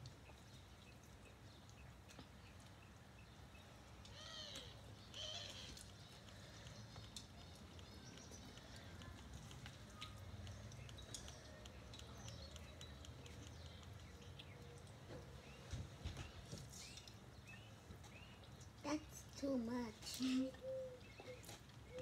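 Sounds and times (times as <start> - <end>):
small clicks: 4.0 - 15.0.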